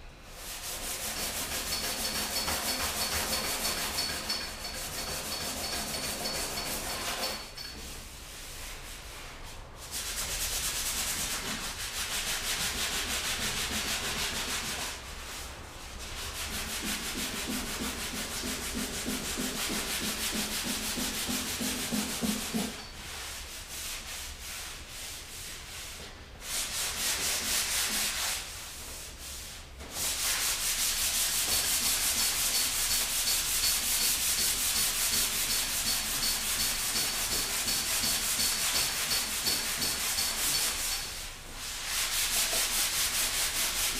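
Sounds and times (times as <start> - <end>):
sandpaper rubbing on metal: 0.4 - 7.5, 16.0 - 43.9.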